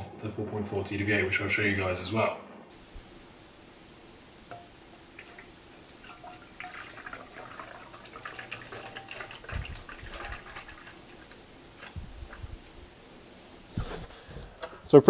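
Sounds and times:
liquid splashing into a jug: 5.1s - 12.4s.

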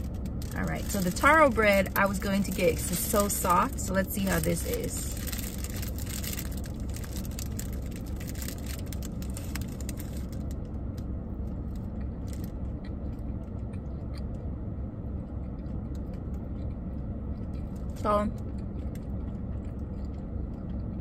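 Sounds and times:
plastic bag crinkling: 0.0s - 10.6s
faint chewing: 11.5s - 14.5s, 15.2s - 21.0s.

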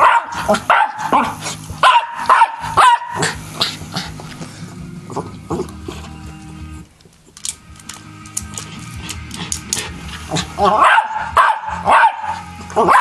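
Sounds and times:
small dog barking: 0.0s - 3.4s, 10.7s - 13.0s.

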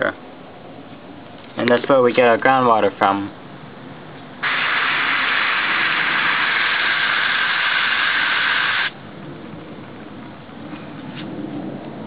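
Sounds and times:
hose spraying water: 4.4s - 9.0s.

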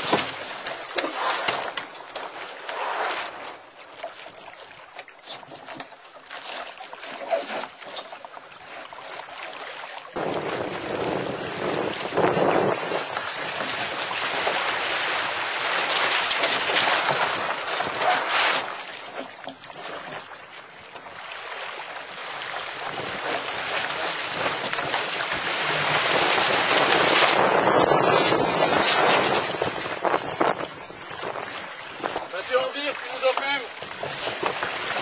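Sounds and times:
water rushing along boat hull: 0.0s - 35.0s
wind buffeting microphone: 10.2s - 13.2s, 25.4s - 32.3s.

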